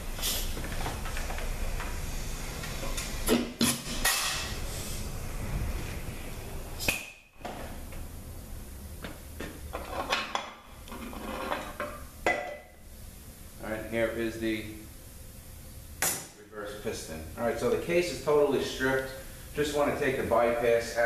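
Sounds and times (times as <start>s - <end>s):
compressed air hissing: 0.0s - 0.6s, 1.9s - 3.4s, 4.5s - 6.9s.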